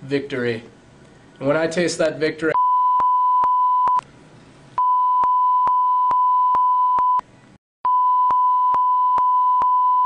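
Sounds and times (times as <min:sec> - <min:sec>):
censor bleep tone: 0:02.6 - 0:04.0, 0:04.8 - 0:07.2, 0:07.9 - 0:10.0.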